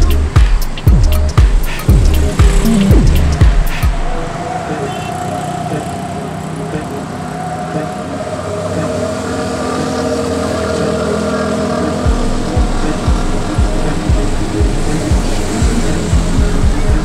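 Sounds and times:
auto rickshaw engines running: 0.0s - 3.4s, 4.0s - 17.0s
road traffic rumble: 0.0s - 17.0s.

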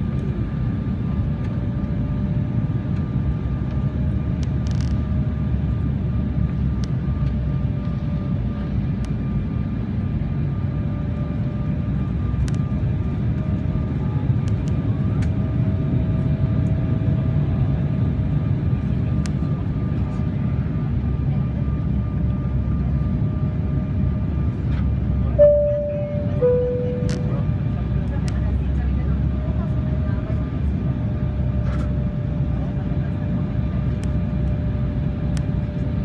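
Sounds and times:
jet engine and airflow rumble: 0.0s - 36.0s
faint steady whine: 25.4s - 27.8s.

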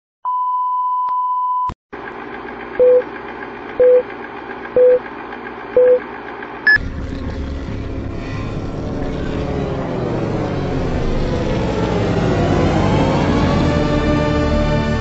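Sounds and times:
film projector rattling whir: 2.0s - 7.1s.

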